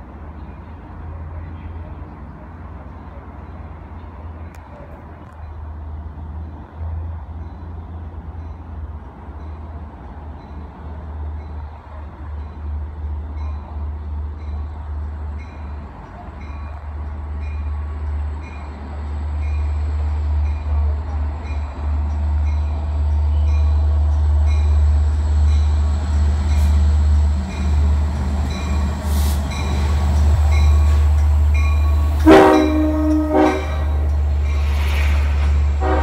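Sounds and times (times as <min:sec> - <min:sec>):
locomotive rumble: 0:00.0 - 0:36.0
train horn blast: 0:32.0 - 0:34.1, 0:35.8 - 0:36.0.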